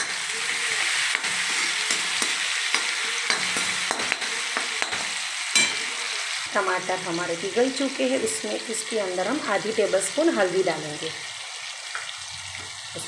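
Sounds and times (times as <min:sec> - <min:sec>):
spatula scraping metal pan: 0:00.0 - 0:06.0
vegetables sizzling in hot oil: 0:00.0 - 0:13.0.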